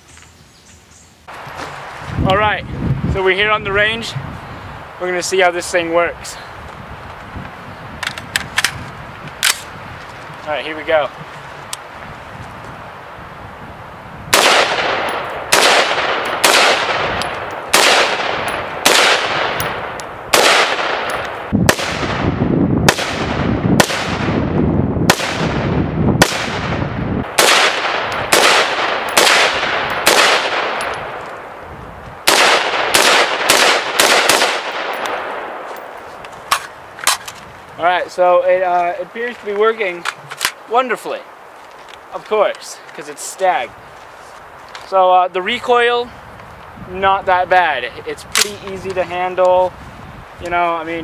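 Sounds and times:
rifle shots with echo: 14.3 - 24.5, 25.1 - 31.2, 32.2 - 35.9.

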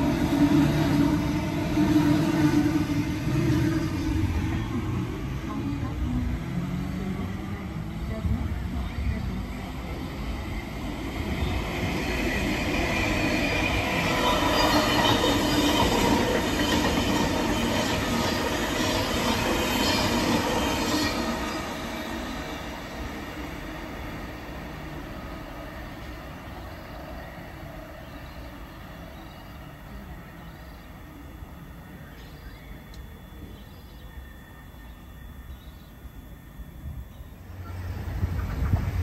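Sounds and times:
electric train passing: 0.0 - 39.0
train wheels squealing: 10.0 - 23.9.

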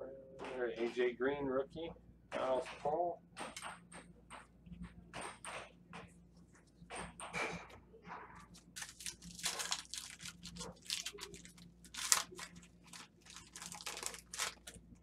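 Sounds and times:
card pack wrapper tearing and crinkling: 8.6 - 15.0.

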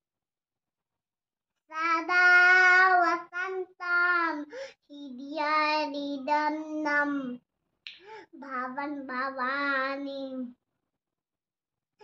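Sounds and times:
girl singing: 1.7 - 7.4, 8.4 - 10.6.

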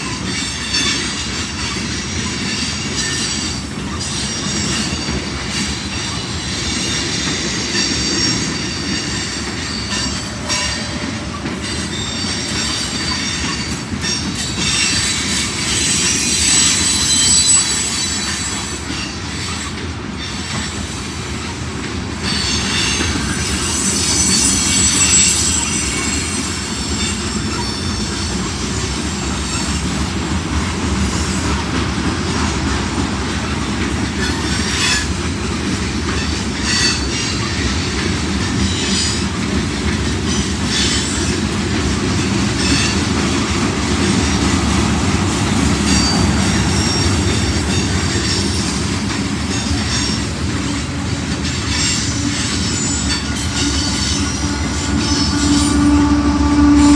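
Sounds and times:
train wheels rumbling on rail: 0.0 - 56.9
high wheel squeals: 2.1 - 20.6, 22.2 - 29.8, 45.8 - 56.9.

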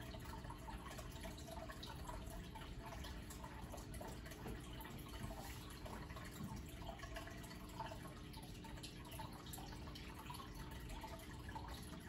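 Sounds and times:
aquarium water bubbling: 0.0 - 12.0
faint steady hum: 0.0 - 12.0.

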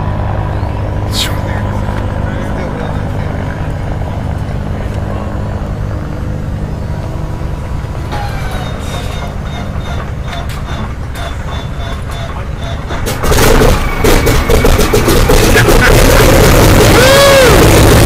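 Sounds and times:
steady low drone: 0.0 - 18.0
starter whine: 4.8 - 18.0
engine turning over with clicks: 8.1 - 17.8.

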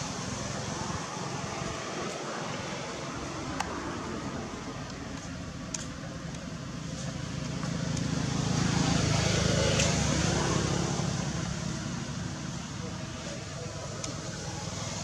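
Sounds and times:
faint voices: 8.7 - 15.0.

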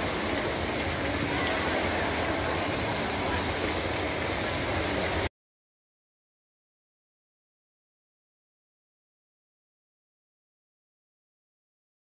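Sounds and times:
fountain water splashing: 0.0 - 5.3.

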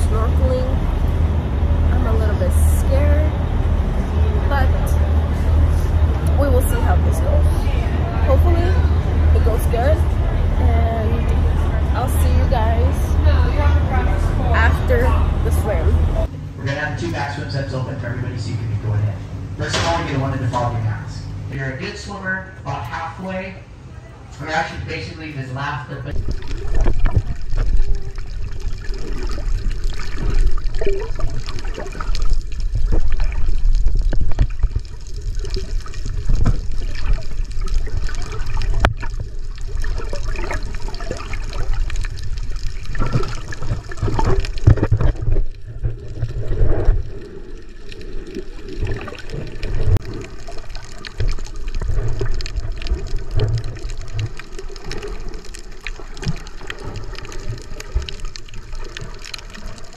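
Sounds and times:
underwater water gurgling: 26.1 - 59.9.

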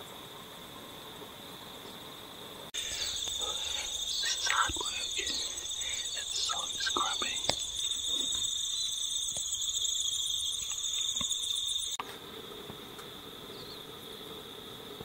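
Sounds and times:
insects chirring: 0.1 - 15.0.

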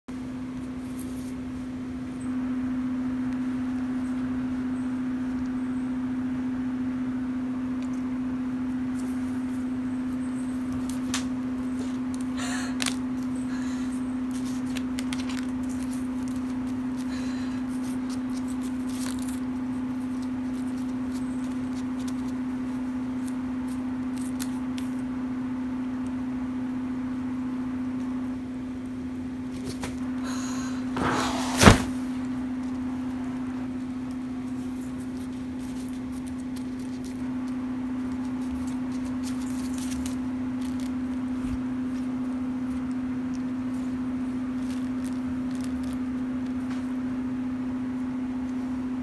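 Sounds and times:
cat pawing paper on floor: 31.0 - 32.1, 34.1 - 42.1.

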